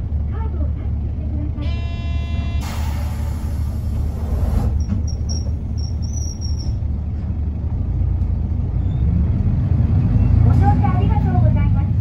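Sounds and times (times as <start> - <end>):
bus engine and road rumble: 0.0 - 12.0
short high squeaks: 4.7 - 6.8.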